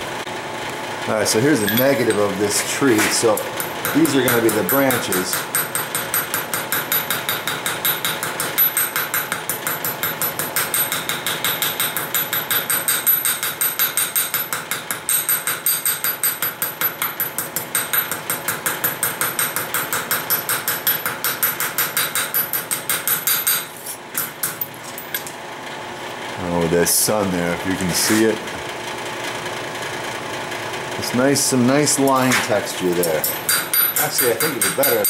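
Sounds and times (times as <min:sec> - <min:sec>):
hammer tapping on sheet metal: 0:03.3 - 0:24.6, 0:33.0 - 0:35.0.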